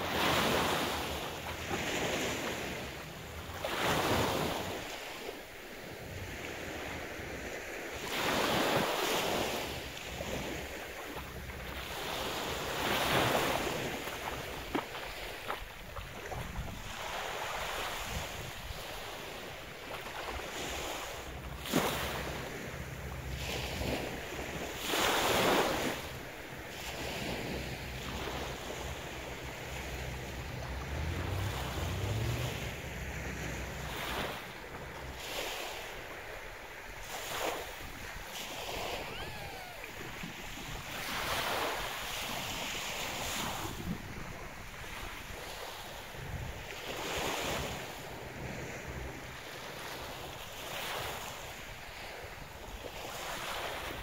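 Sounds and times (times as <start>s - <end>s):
boat engine droning: 0.0s - 7.4s, 9.6s - 37.1s, 46.9s - 52.3s
waves washing onto beach: 0.0s - 54.0s
wind buffeting microphone: 1.6s - 52.8s.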